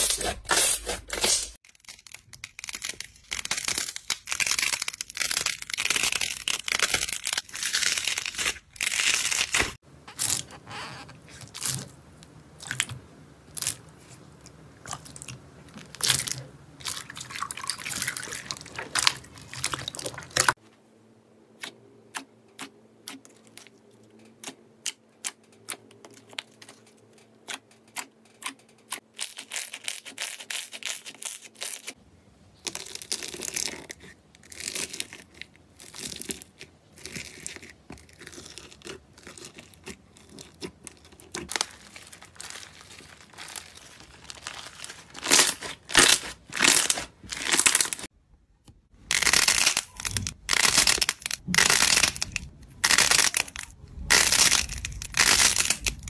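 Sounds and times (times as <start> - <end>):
crunching bead-filled slime: 1.6 - 10.5, 24.4 - 48.1, 49.0 - 56.0
slime tearing apart: 49.1 - 56.0.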